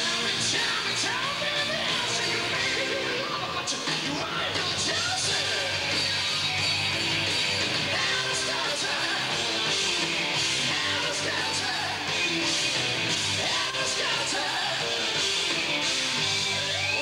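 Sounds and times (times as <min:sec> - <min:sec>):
singer yelling: 0:00.0 - 0:06.4
bass guitar: 0:00.0 - 0:17.0
distorted electric guitar: 0:00.0 - 0:17.0
drums: 0:00.0 - 0:17.0.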